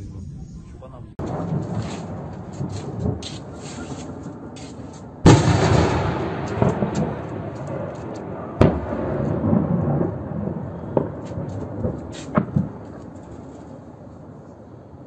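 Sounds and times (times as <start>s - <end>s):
distant blast rumbling: 0.0s - 15.0s
sharp blast: 1.2s - 9.1s.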